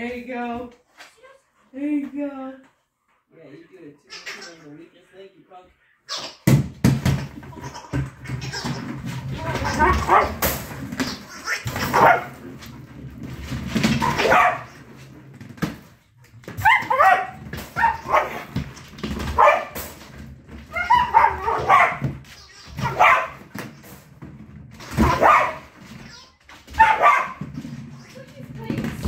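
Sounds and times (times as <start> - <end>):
dog barking: 9.8 - 10.4, 11.9 - 12.4, 14.0 - 14.7, 16.6 - 18.5, 19.4 - 19.8, 20.8 - 22.0, 22.8 - 23.4, 25.0 - 25.6, 26.8 - 27.4.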